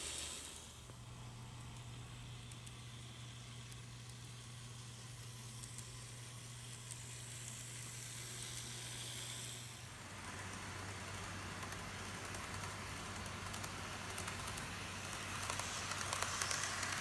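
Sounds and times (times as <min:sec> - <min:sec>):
low steady hum: 0:00.0 - 0:17.0
model train wheels hissing on rails: 0:00.0 - 0:17.0
faint clicks: 0:01.6 - 0:04.4, 0:11.6 - 0:17.0.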